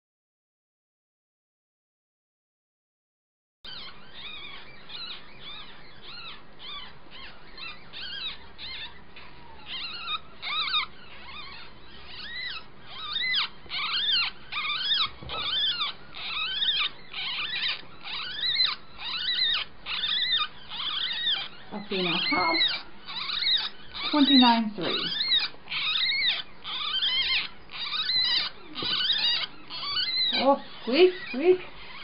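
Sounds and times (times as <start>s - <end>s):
ferret kit squeaking: 3.7s - 32.0s.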